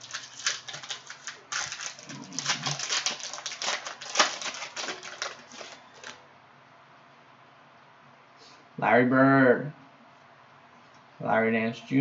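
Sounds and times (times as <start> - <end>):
cellophane wrapper crinkling: 0.0 - 6.2.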